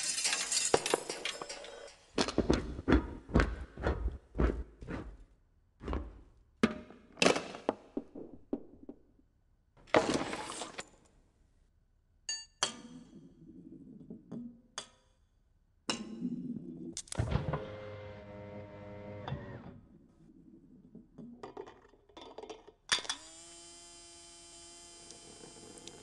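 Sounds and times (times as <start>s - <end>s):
rolling rattle: 0.0s - 2.3s.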